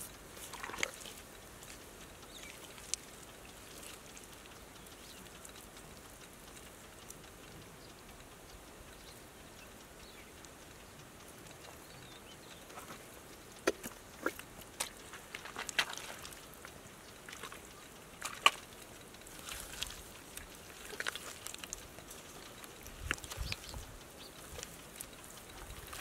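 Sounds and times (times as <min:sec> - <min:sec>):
hands squelching wet mud: 0:00.0 - 0:01.8, 0:02.4 - 0:05.0, 0:13.6 - 0:16.5, 0:17.2 - 0:18.7, 0:19.3 - 0:23.7.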